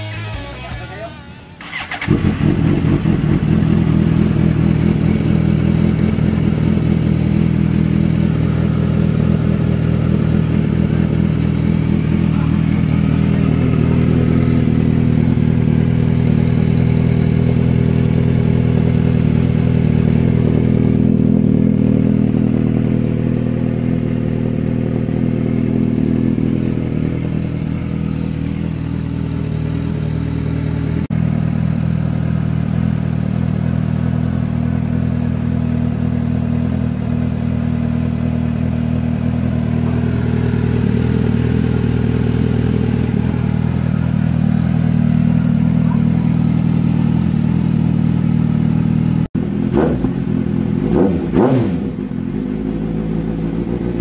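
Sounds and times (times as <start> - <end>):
motorcycle engine idling: 0.0 - 54.0
electric starter cranking: 1.6 - 2.6.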